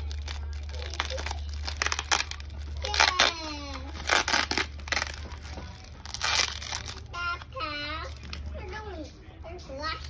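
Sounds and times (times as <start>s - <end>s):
plastic wrap crinkling: 0.0s - 8.9s
tape being pulled off: 2.9s - 5.2s.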